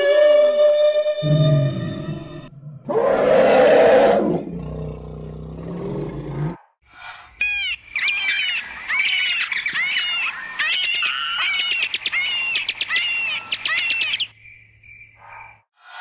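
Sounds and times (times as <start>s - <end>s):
shrill creature chirping and squeaking: 7.4s - 14.3s.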